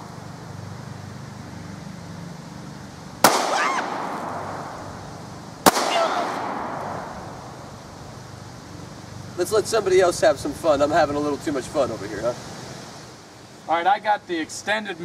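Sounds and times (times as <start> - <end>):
pistol shots: 3.2 - 4.7, 5.6 - 7.2.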